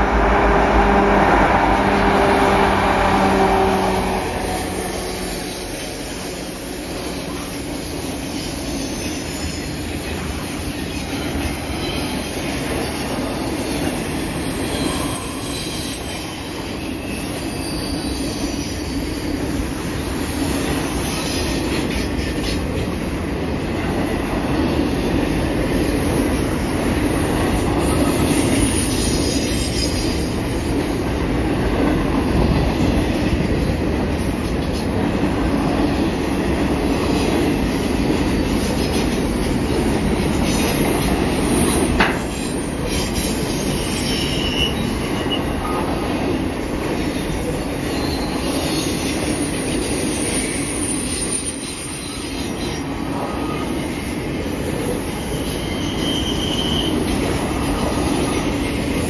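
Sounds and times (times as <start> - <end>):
diesel locomotives droning: 0.0 - 8.2
train wheels clickety-clack on rails: 0.0 - 59.0
faint high wheel squeals: 4.8 - 10.0, 10.8 - 19.7, 41.6 - 45.8, 47.3 - 52.7, 55.2 - 57.2.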